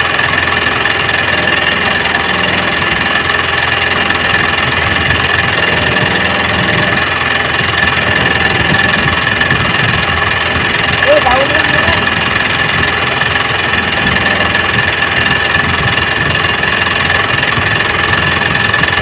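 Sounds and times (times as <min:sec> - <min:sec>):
high whine: 0:00.0 - 0:19.0
small boat engine idling: 0:00.0 - 0:19.0.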